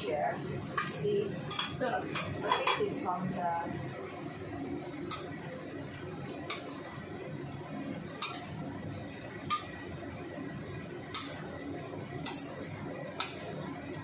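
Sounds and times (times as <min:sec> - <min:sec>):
metal ladle clinking on wok: 0:00.8 - 0:02.9, 0:08.2 - 0:08.6.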